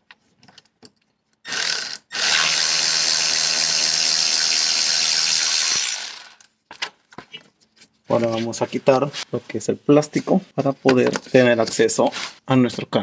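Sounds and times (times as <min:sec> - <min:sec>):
power tool motor whirring: 0:01.5 - 0:06.4.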